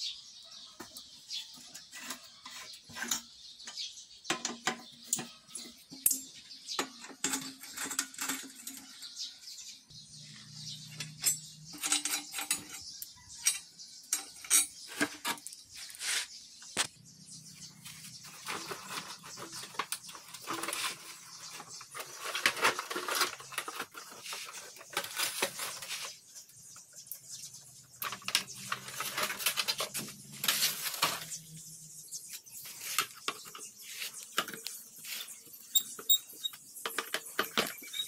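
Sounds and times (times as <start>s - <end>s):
metal parts clinking and scraping: 1.7s - 3.9s, 5.1s - 9.4s, 10.2s - 16.2s, 18.2s - 26.3s, 27.9s - 31.6s, 32.5s - 38.0s.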